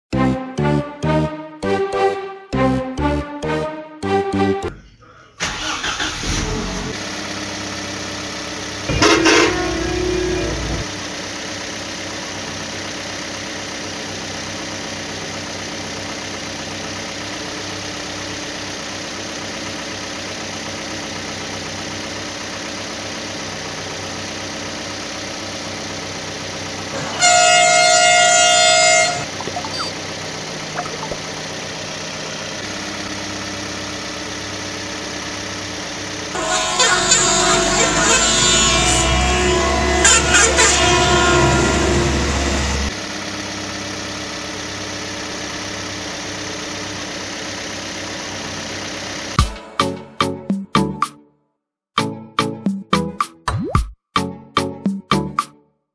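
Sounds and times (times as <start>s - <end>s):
engine drone: 5.4s - 49.4s
vehicle horn: 8.9s - 10.9s, 27.0s - 29.9s, 36.3s - 43.0s.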